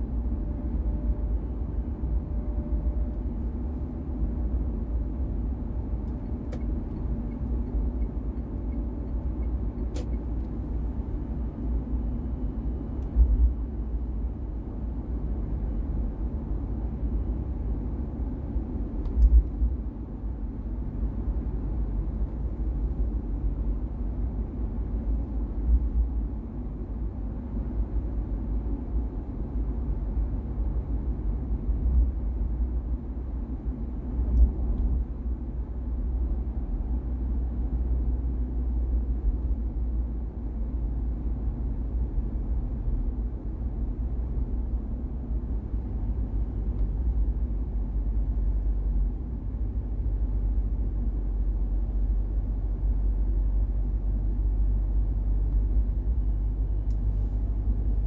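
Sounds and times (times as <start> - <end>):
car driving road noise: 0.0 - 58.0.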